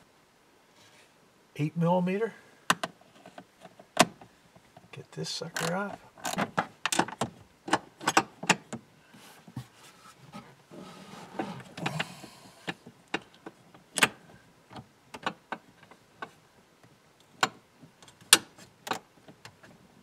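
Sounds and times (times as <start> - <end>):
hand and tool scraping plastic: 9.2 - 11.8.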